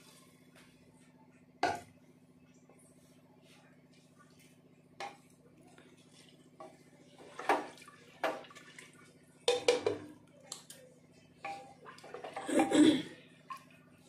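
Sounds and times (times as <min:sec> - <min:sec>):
spatula sloshing rice in water: 0:04.0 - 0:10.0
spatula knocking against pot: 0:09.5 - 0:10.0.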